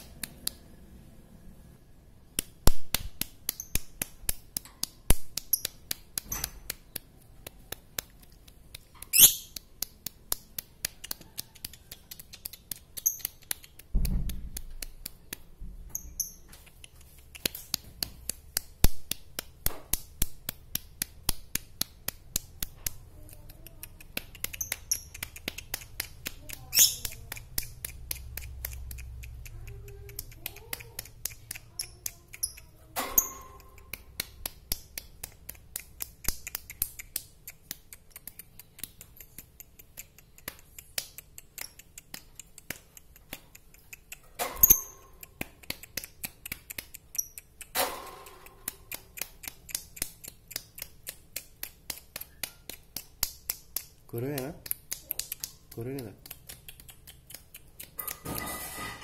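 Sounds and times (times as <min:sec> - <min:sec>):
bird chirping: 0:09.0 - 0:09.6, 0:15.9 - 0:16.7, 0:24.4 - 0:25.4, 0:26.6 - 0:27.2.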